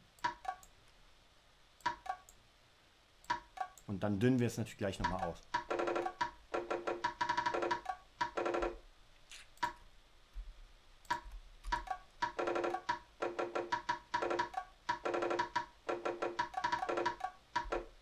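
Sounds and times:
looping programmed percussion beat: 0:05.0 - 0:08.8, 0:11.1 - 0:17.9.

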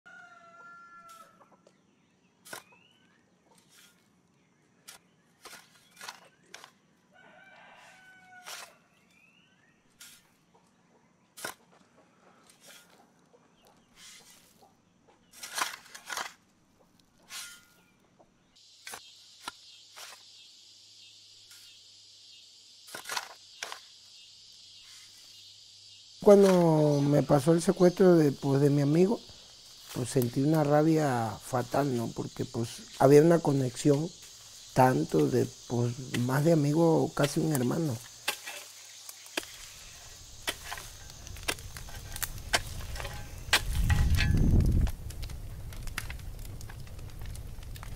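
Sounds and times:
rooster crowing: 0:00.1 - 0:01.5, 0:07.1 - 0:08.9
high insect drone: 0:18.6 - 0:47.9.

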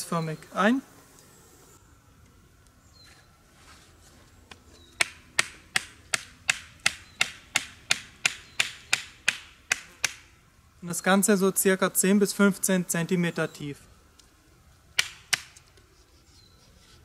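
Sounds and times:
knife striking wooden stick: 0:05.0 - 0:10.3.

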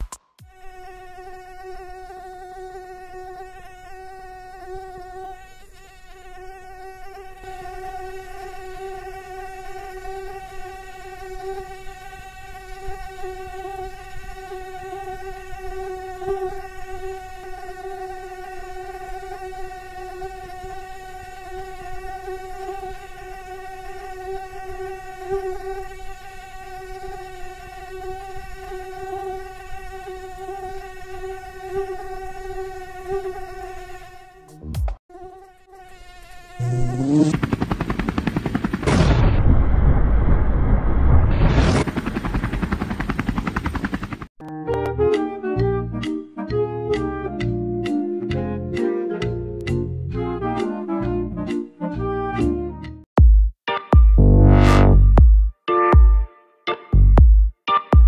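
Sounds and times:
mosquito buzzing: 0:00.4 - 0:37.8, 0:43.6 - 0:52.6, 0:54.2 - 0:55.5.

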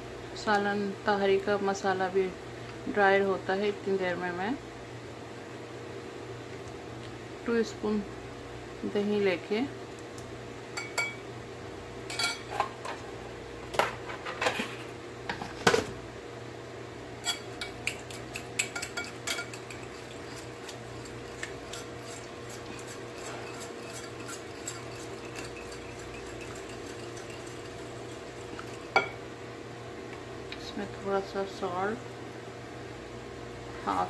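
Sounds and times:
whisk clinking against ceramic bowl: 0:17.2 - 0:29.2.

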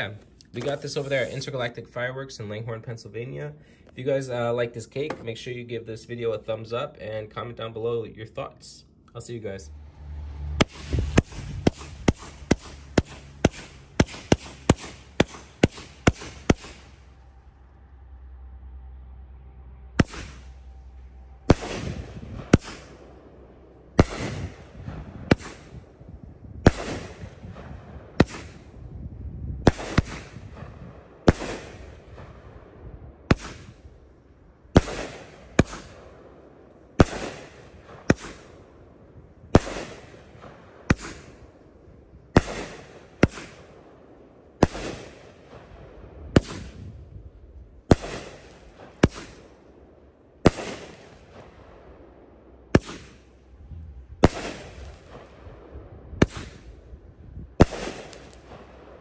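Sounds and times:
firework bangs: 0:10.4 - 0:17.6, 0:20.0 - 0:41.6, 0:42.3 - 0:59.0.

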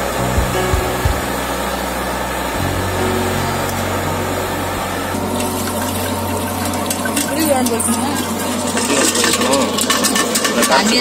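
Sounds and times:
steady rushing noise: 0:00.0 - 0:05.2.

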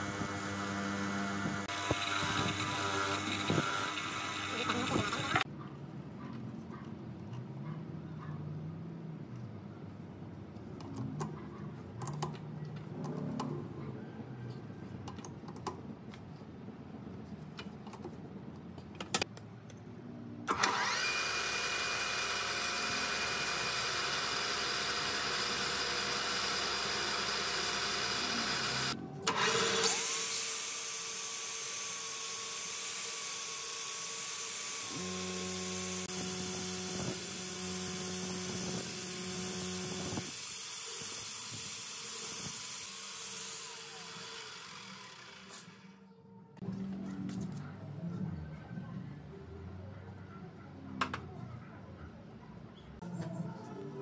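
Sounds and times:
electric power tool running: 0:00.0 - 0:05.4, 0:20.5 - 0:46.0.

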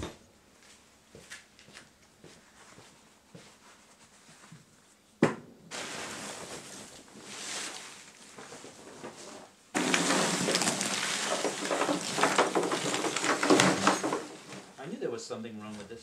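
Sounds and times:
charcoal rattling in wooden box: 0:05.7 - 0:14.8.

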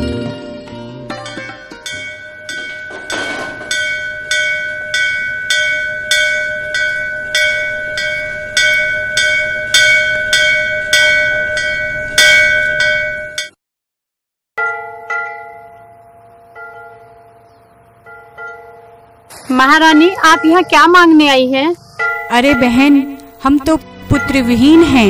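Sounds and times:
brass bell ringing: 0:00.3 - 0:13.5, 0:22.0 - 0:25.0.

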